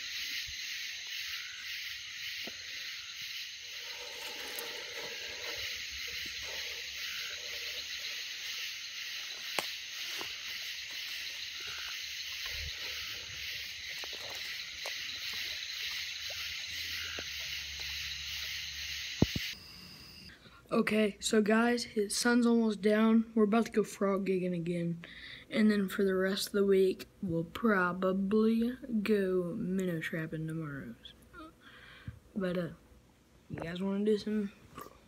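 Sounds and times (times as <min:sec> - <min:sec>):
night insects chorus: 0:00.0 - 0:20.3.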